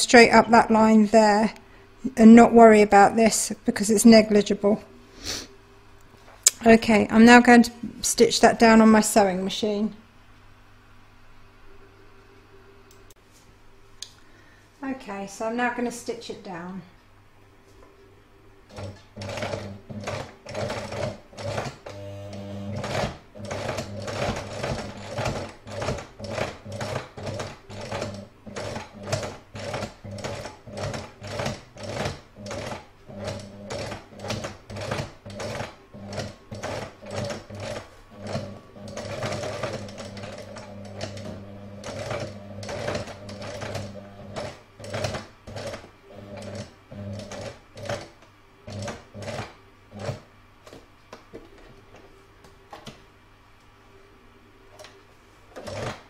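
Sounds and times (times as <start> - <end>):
sewing machine stitching: 18.7 - 50.3, 55.5 - 56.0.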